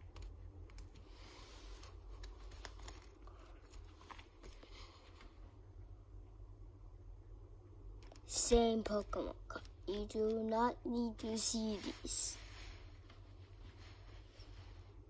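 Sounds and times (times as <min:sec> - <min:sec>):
plastic pages crinkling: 0:01.6 - 0:05.3.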